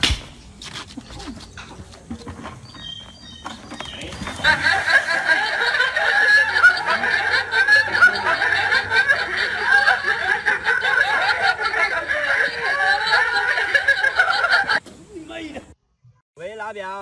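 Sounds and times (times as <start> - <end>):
people laughing: 4.0 - 14.8.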